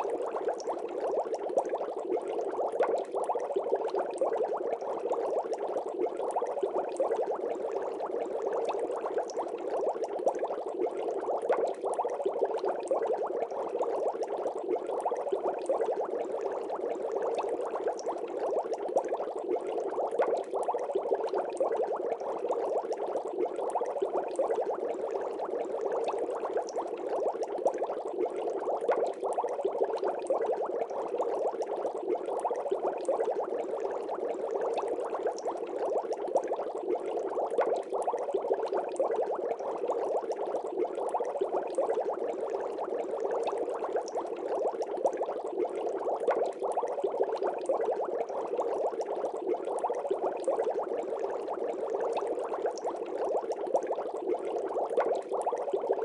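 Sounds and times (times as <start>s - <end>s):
bubbling water: 0.0s - 56.0s.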